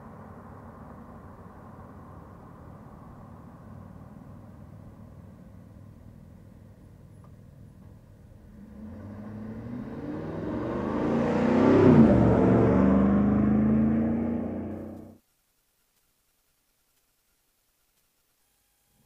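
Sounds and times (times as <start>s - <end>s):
pickup truck driving past: 8.3s - 15.2s.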